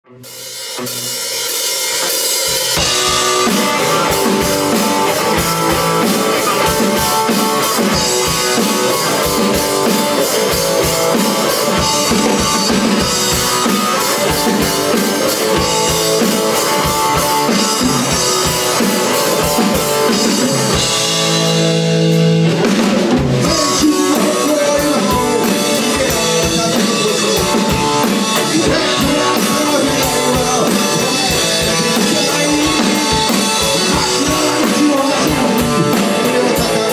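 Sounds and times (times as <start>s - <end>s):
electric guitar: 0.0s - 36.9s
drum kit: 0.1s - 36.9s.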